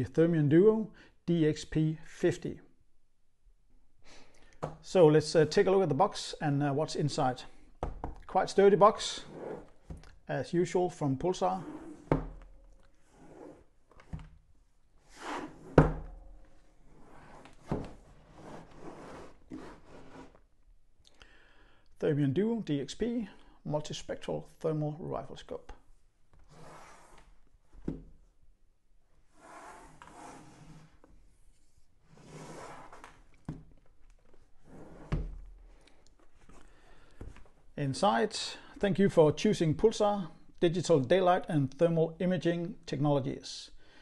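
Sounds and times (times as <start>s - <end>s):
cardboard sliding and rustling: 16.8s - 20.4s, 29.3s - 33.3s.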